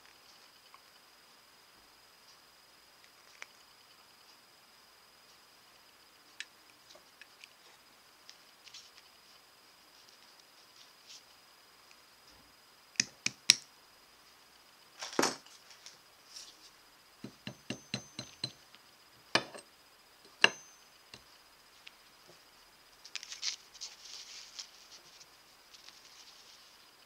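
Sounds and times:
hammer tapping metal on anvil: 17.2s - 18.6s, 19.4s - 19.7s, 20.3s - 21.2s
small metal clinks: 17.2s - 18.7s, 20.3s - 21.2s.

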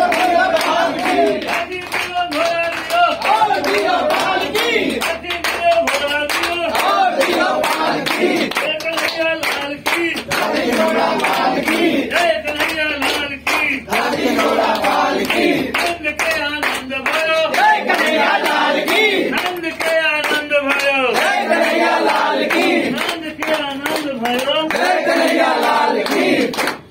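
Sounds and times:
group singing devotional song: 0.0s - 1.8s, 2.9s - 5.0s, 6.7s - 8.5s, 10.2s - 12.4s, 13.8s - 16.0s, 17.1s - 19.4s, 21.0s - 23.1s, 24.7s - 26.8s
rhythmic hand-clapping: 0.0s - 26.9s.

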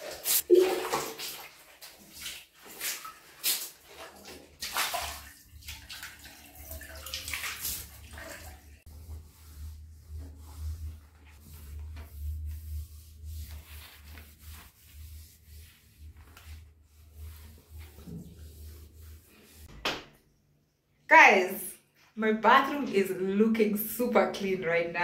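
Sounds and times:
cloth scrubbing wet tiles: 0.0s - 19.7s
low steady hum: 8.9s - 19.6s.

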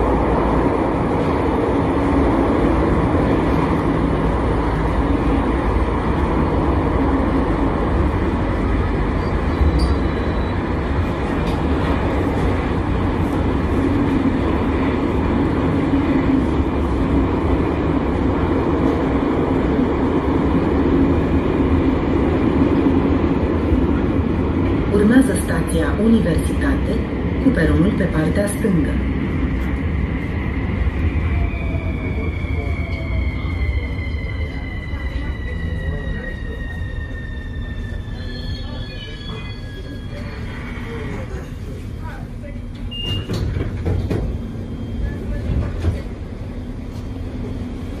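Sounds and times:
metro train running: 0.0s - 48.0s.

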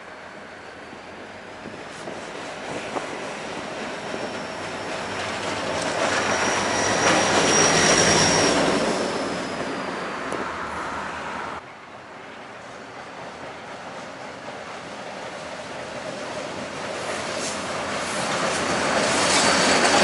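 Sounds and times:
diesel locomotive rumbling past: 0.0s - 20.0s
high wheel squeal: 0.2s - 11.2s, 17.1s - 20.0s.

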